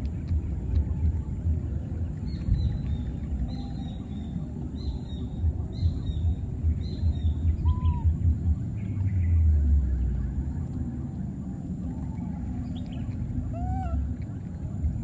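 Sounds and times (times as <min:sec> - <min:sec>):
wind buffeting microphone: 0:00.0 - 0:15.0
small bird chirping: 0:01.6 - 0:10.8.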